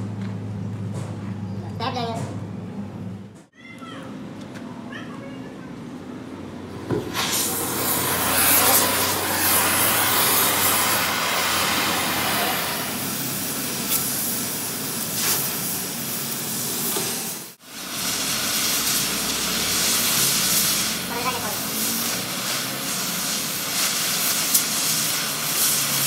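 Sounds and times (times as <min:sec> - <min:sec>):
cutting torch hissing: 0:06.8 - 0:26.0.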